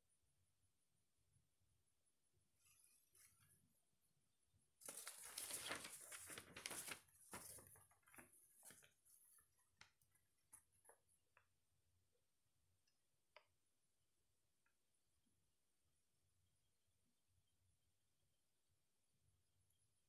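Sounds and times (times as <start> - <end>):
printer paper rustling: 4.8 - 9.0.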